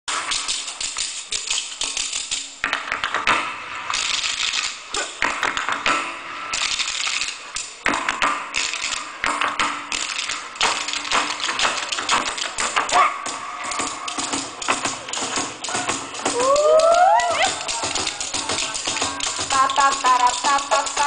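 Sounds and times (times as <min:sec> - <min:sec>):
spoons clacking rhythmically: 0:00.1 - 0:02.7, 0:06.5 - 0:07.9, 0:08.5 - 0:21.0.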